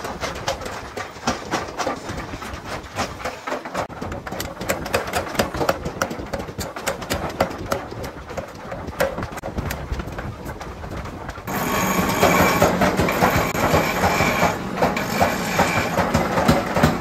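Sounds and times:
power hammer striking hot steel: 0:11.5 - 0:17.0.

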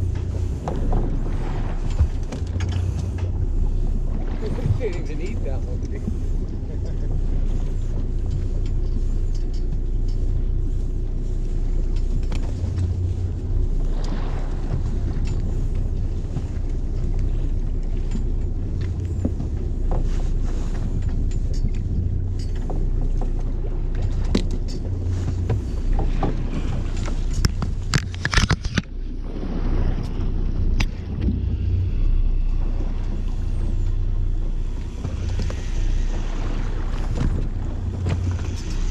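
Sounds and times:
boat engine low rumble: 0:00.0 - 0:38.9
sharp clicks and knocks: 0:21.0 - 0:29.0.

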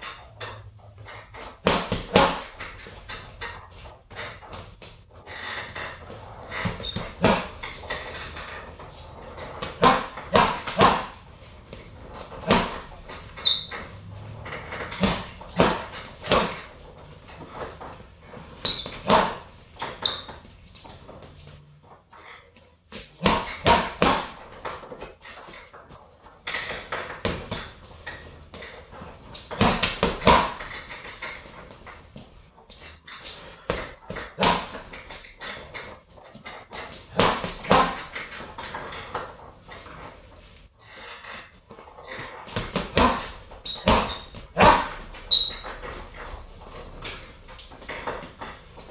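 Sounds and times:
boxing gloves punching heavy bag: 0:01.0 - 0:20.5, 0:22.9 - 0:32.8, 0:33.4 - 0:39.4, 0:41.7 - 0:48.9
brief high squeaks: 0:09.0 - 0:09.5, 0:18.6 - 0:19.0, 0:45.2 - 0:45.9.

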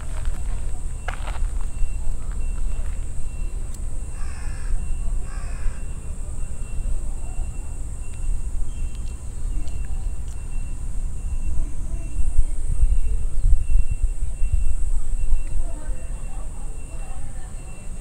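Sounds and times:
wind rumble on microphone: 0:00.0 - 0:07.2, 0:07.8 - 0:18.0
crow cawing: 0:04.2 - 0:06.0.

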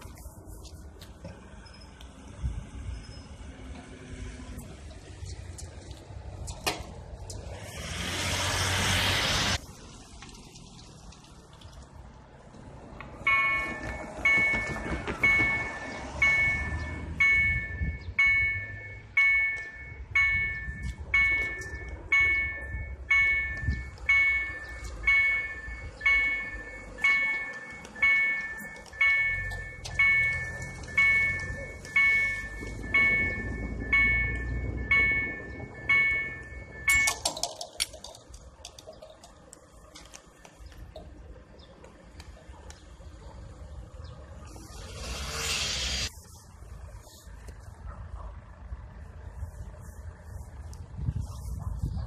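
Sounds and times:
level crossing bell ringing: 0:13.3 - 0:37.3.

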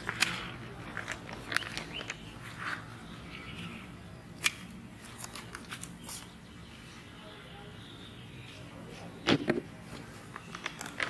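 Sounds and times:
okra pods snapping: 0:00.0 - 0:02.2, 0:04.3 - 0:06.3.

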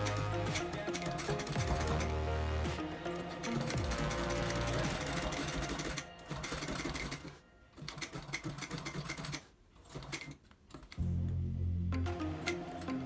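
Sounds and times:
sewing machine stitching: 0:00.0 - 0:02.3, 0:03.1 - 0:11.0
background music: 0:00.0 - 0:09.3, 0:10.9 - 0:13.0.

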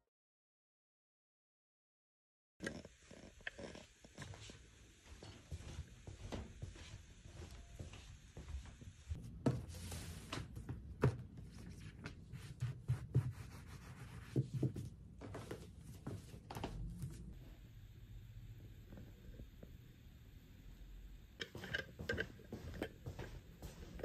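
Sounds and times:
bath mat rubbed on wooden floor: 0:12.3 - 0:14.7.

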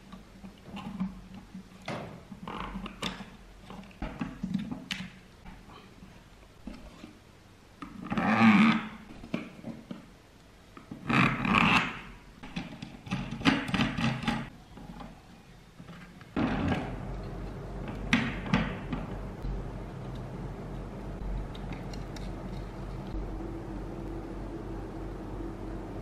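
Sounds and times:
low steady hum: 0:14.2 - 0:26.0.

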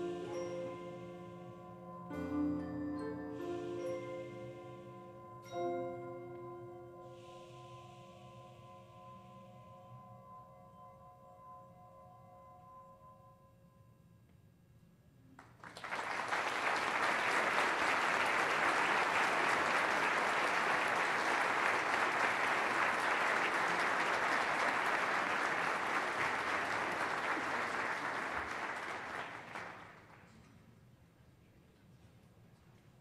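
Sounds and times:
audience applause: 0:15.4 - 0:30.3
concert band held notes: 0:16.6 - 0:29.6.

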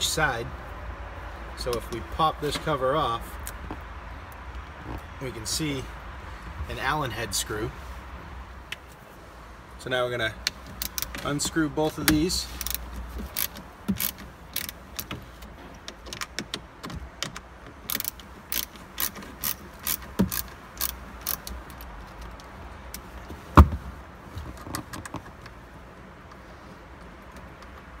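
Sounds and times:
hand ratchet clicking: 0:10.5 - 0:11.2, 0:12.0 - 0:22.5.

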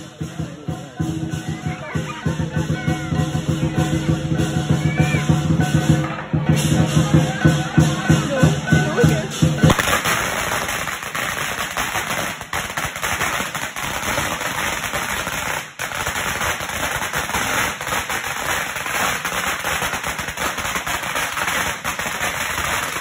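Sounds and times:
firecrackers crackling: 0:00.0 - 0:23.0.

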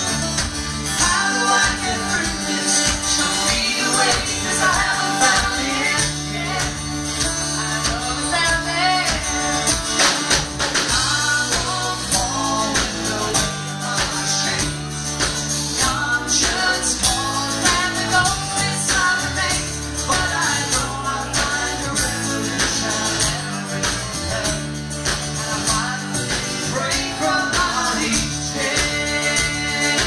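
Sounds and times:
live country band: 0:00.0 - 0:30.0
woman singing: 0:01.0 - 0:09.8, 0:10.9 - 0:14.8, 0:15.7 - 0:30.0.

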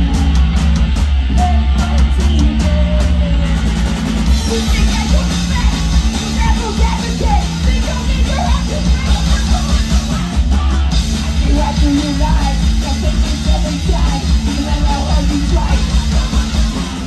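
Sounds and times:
punk rock band playing: 0:00.0 - 0:17.0
woman singing: 0:04.3 - 0:17.0.

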